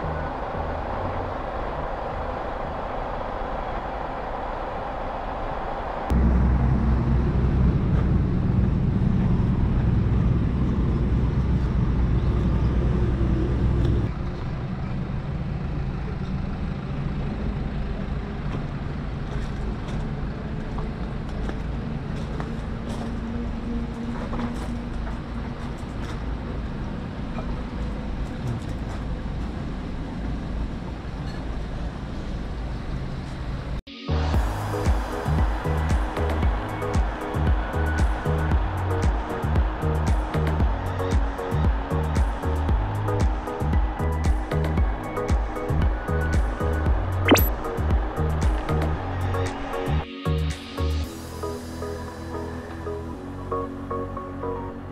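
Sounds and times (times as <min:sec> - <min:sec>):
loud low rumble: 0:00.0 - 0:17.5
traffic noise: 0:00.0 - 0:54.9.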